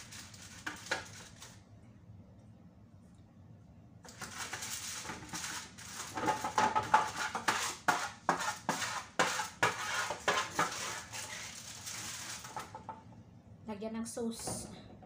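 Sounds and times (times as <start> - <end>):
spatula scraping cooking pot: 4.2 - 12.6.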